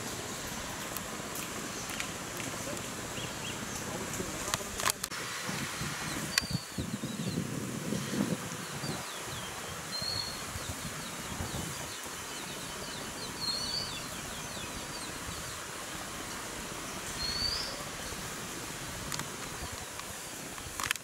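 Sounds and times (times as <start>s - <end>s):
steady outdoor hiss: 0.0s - 21.0s
whistled bird notes: 6.1s - 7.4s, 8.8s - 10.4s, 11.0s - 15.4s, 17.1s - 17.9s.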